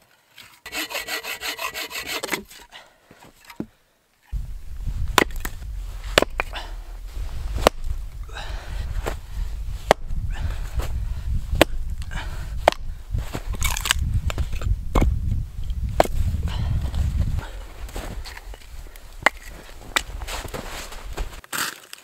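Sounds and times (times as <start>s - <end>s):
wood scraping and rustling: 4.3s - 21.4s
hatchet chopping wood: 11.6s - 11.8s, 12.6s - 12.8s.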